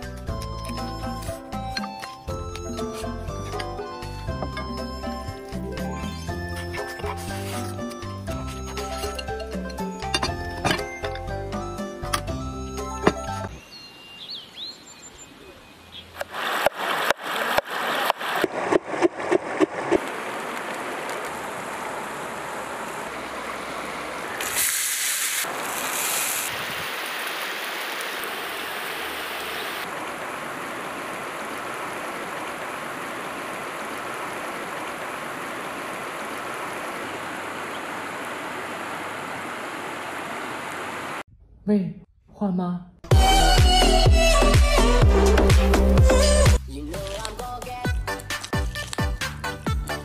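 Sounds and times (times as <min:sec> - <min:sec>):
potato sizzling in oil: 0:24.3 - 0:29.7.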